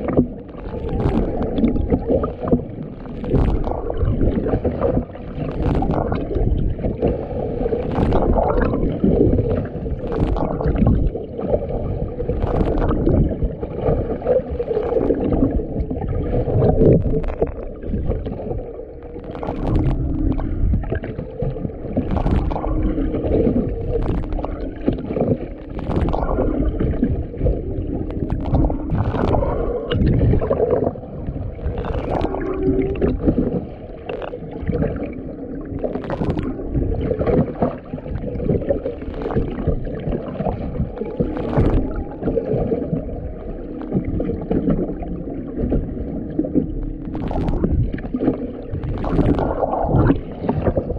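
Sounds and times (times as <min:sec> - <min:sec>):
boat engine noise: 0:00.0 - 0:50.9
underwater rumble of water: 0:00.0 - 0:50.9
wavering tones: 0:17.0 - 0:37.6.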